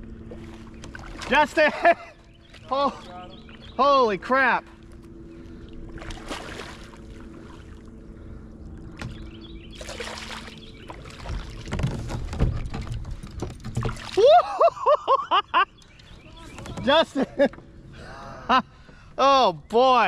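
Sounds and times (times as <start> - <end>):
water splashing: 0.0 - 4.0, 4.6 - 8.0, 8.9 - 14.6.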